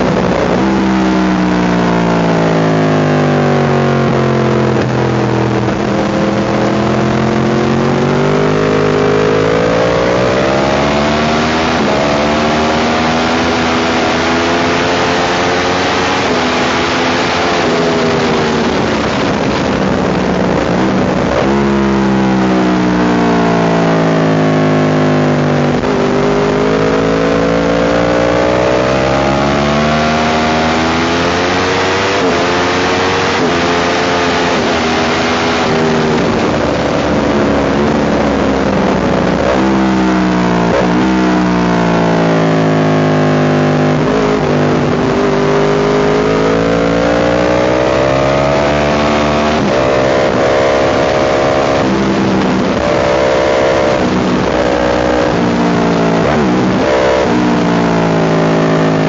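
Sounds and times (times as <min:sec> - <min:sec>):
motorcycle engine at high revs: 0:00.0 - 0:59.0
wind rush: 0:17.6 - 0:21.6.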